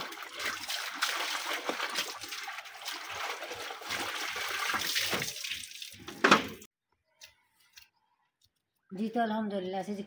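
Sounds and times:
hose running water: 0:00.0 - 0:06.6
water sloshing and splashing in bucket: 0:00.0 - 0:06.7.

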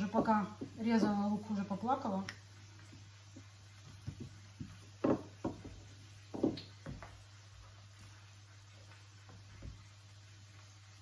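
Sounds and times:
steady low hum: 0:00.0 - 0:06.4
utensils knocking on counter: 0:04.0 - 0:07.0.

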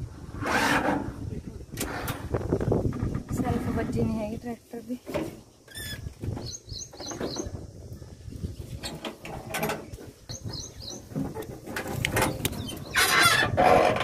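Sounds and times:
small bird chirping: 0:05.5 - 0:07.6, 0:10.2 - 0:11.2.

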